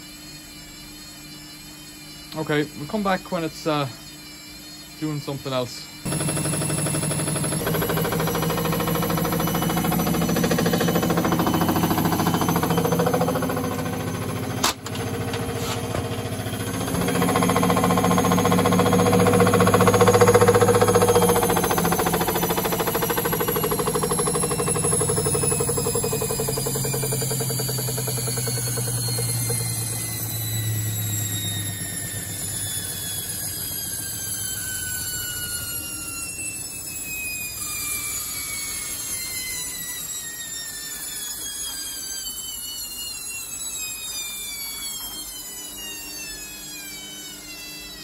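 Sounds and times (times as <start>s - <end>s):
washer-dryer drum spinning down: 6.0s - 39.9s.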